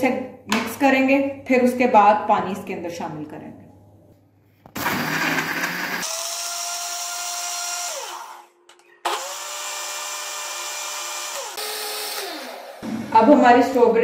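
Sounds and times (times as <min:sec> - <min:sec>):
electric blender whirring: 0:04.8 - 0:13.1.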